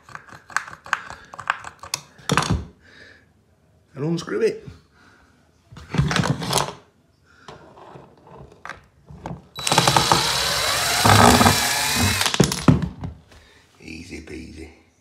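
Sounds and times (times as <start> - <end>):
cordless drill whining: 9.6 - 12.6
drill clicks: 9.6 - 12.7.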